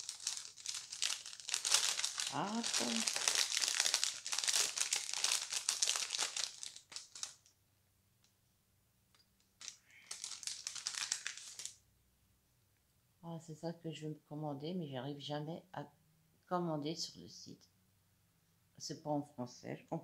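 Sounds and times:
packaging crinkling: 0:00.0 - 0:07.5, 0:09.6 - 0:11.8.

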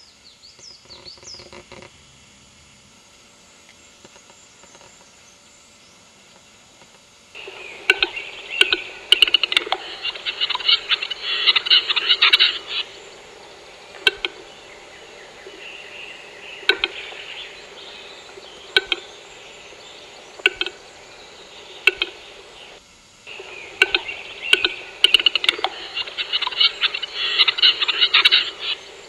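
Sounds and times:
rapid scratchy bird notes: 0:07.4 - 0:29.0
bird double clicks: 0:07.8 - 0:09.8, 0:14.0 - 0:14.4, 0:16.6 - 0:17.2, 0:18.7 - 0:19.1, 0:20.4 - 0:20.8, 0:21.8 - 0:22.2, 0:23.8 - 0:26.6.

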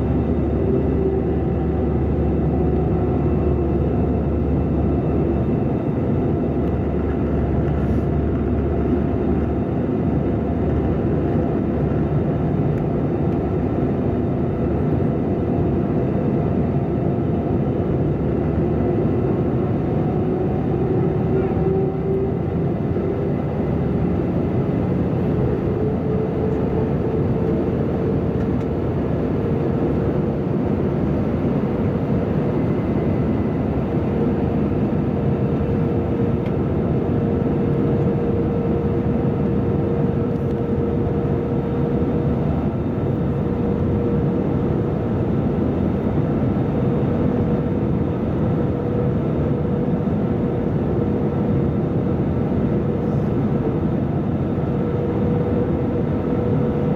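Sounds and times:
airflow rushing in cabin: 0:00.0 - 0:56.9
jet engine hum: 0:00.0 - 0:56.9.

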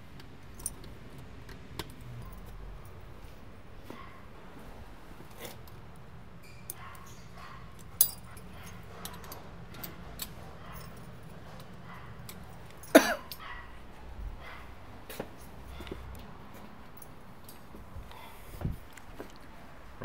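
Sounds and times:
keys jangling: 0:00.5 - 0:01.2, 0:06.4 - 0:13.6
key rattling in metal lock: 0:00.5 - 0:03.0, 0:06.5 - 0:13.5
dog barking: 0:03.9 - 0:04.3, 0:06.7 - 0:09.4, 0:10.5 - 0:11.0, 0:11.8 - 0:12.3, 0:13.0 - 0:14.8.

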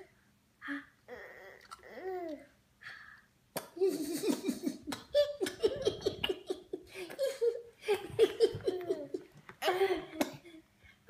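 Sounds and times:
woman and toddler laughing: 0:03.8 - 0:10.2.

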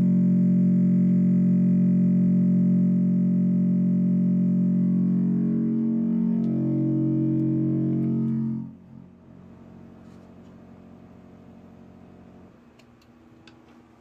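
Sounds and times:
distorted low buzz: 0:00.0 - 0:12.6
faint hum: 0:00.0 - 0:14.0.

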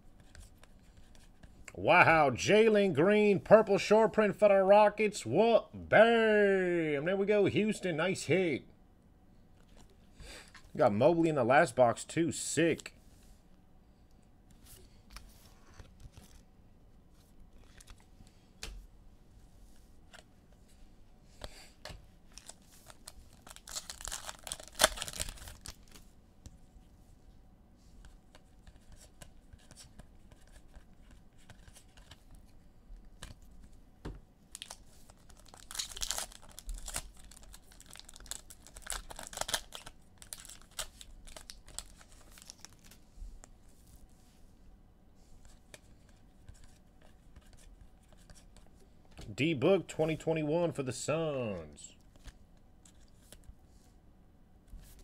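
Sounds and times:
foil wrapper tearing and crinkling: 0:22.3 - 0:26.0, 0:34.5 - 0:43.0.

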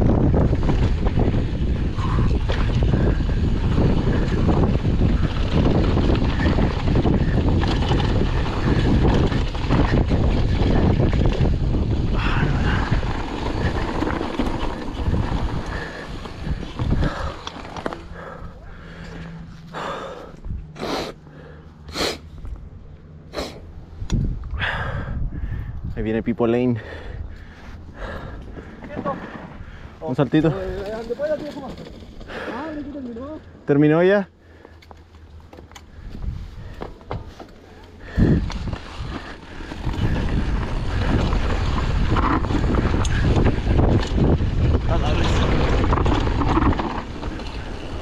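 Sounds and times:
wind on microphone: 0:00.0 - 0:17.4, 0:23.8 - 0:26.2, 0:35.9 - 0:37.3, 0:38.0 - 0:48.0
bike tyre and rattle noise: 0:00.0 - 0:48.0.

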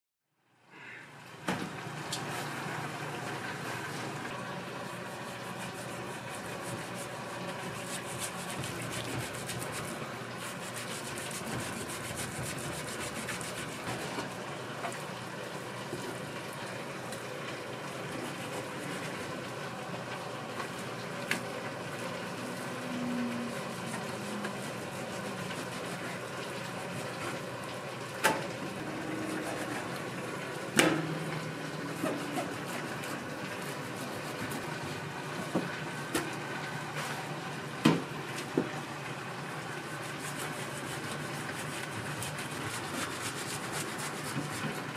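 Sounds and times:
commercial kitchen background noise: 0:00.3 - 0:44.9.

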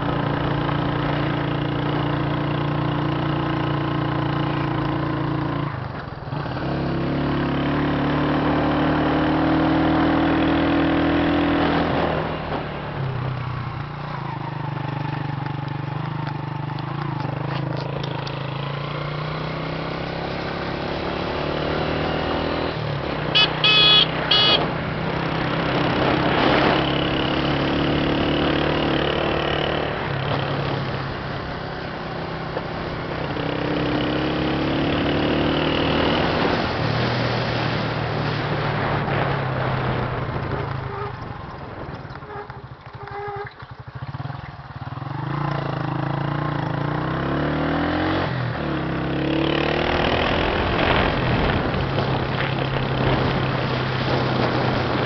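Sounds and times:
vehicle engine running: 0:22.9 - 0:25.2
short beeps: 0:23.4 - 0:24.6.

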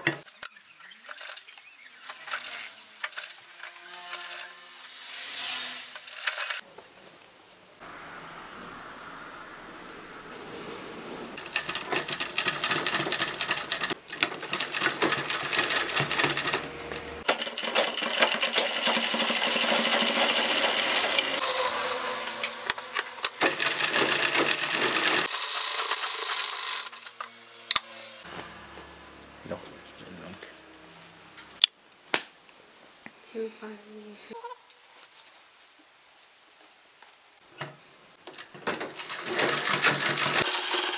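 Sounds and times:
sewing machine stitching: 0:11.4 - 0:21.7, 0:22.3 - 0:27.1, 0:38.9 - 0:40.9.

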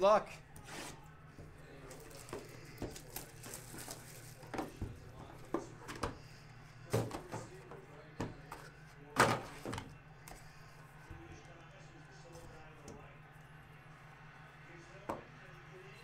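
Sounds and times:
cardboard and plastic clicks and rustles: 0:01.8 - 0:04.9.

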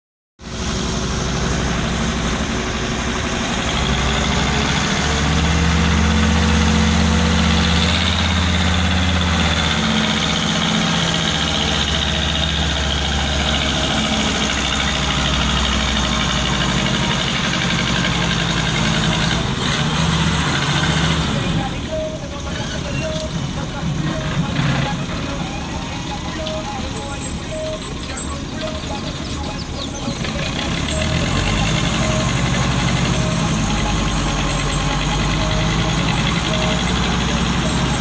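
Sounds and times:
tractor diesel engine under load: 0:00.4 - 0:38.0.

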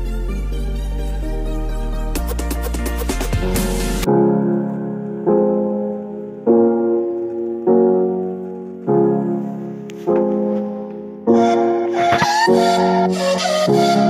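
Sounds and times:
electronic music with piano chords: 0:00.0 - 0:14.0.

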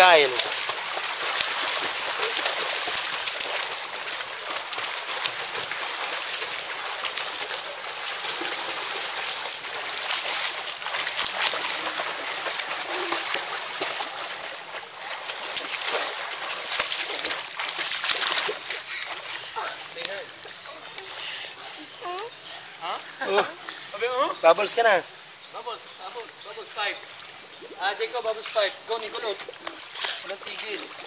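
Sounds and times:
hands slapping water: 0:00.0 - 0:20.2, 0:28.2 - 0:31.0
swimming splashes: 0:00.0 - 0:31.0.

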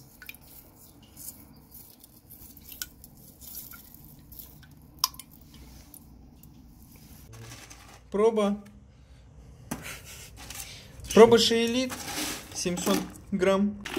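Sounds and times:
light drips: 0:00.0 - 0:06.7.

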